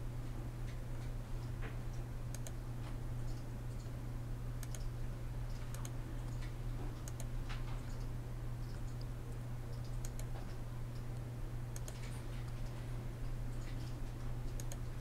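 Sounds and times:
steady low hum: 0:00.0 - 0:15.0
computer mouse clicks: 0:02.3 - 0:02.6, 0:04.6 - 0:04.9, 0:05.5 - 0:12.8, 0:13.5 - 0:14.9.

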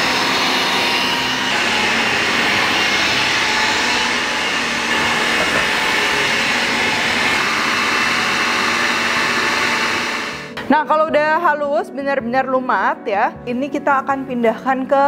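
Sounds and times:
food processor grinding: 0:00.0 - 0:10.6.

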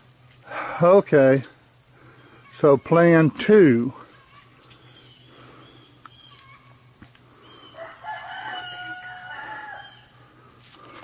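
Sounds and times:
rooster crowing: 0:07.4 - 0:10.2.

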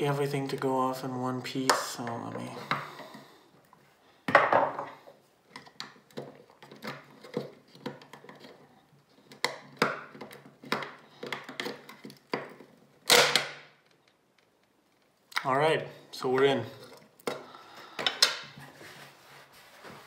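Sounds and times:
screwdriver prying plastic case: 0:05.5 - 0:08.6, 0:09.3 - 0:13.4.

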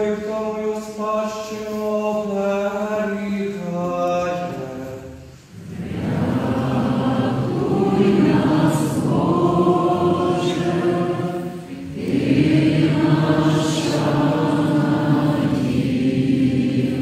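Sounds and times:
voices singing liturgical chant: 0:00.0 - 0:17.0.

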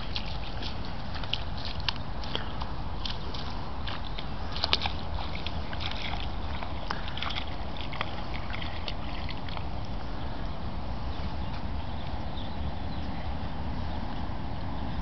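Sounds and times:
dog splashing through water: 0:00.0 - 0:10.1.

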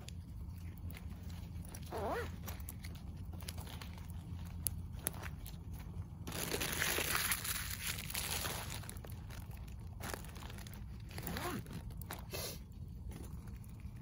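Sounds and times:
wood fire crackling and hissing: 0:00.0 - 0:14.0.

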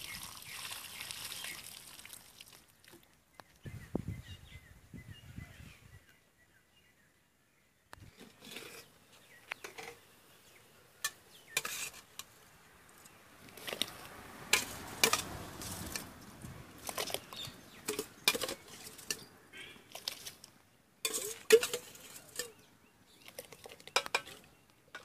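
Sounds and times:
cooking pots and lids clattering: 0:14.5 - 0:15.3, 0:16.8 - 0:19.3, 0:21.0 - 0:22.6.

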